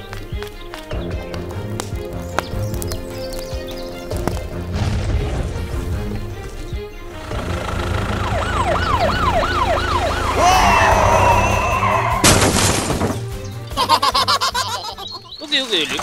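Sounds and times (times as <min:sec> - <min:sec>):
background music: 0:00.0 - 0:16.0
police siren yelp: 0:08.0 - 0:12.2.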